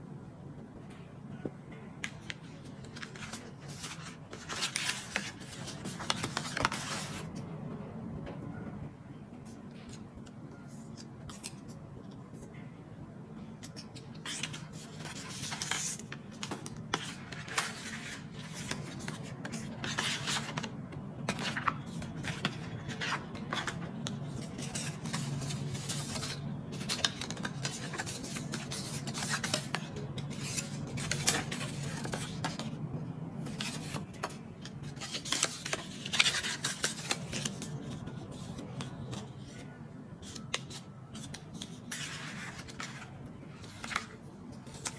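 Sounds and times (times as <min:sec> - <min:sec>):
paper and card rustling: 0:02.0 - 0:07.3, 0:13.6 - 0:32.8, 0:33.4 - 0:44.9.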